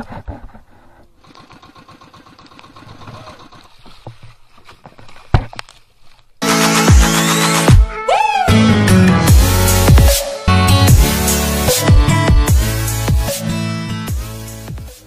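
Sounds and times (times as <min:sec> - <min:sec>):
loud dubstep music: 0:06.4 - 0:15.0.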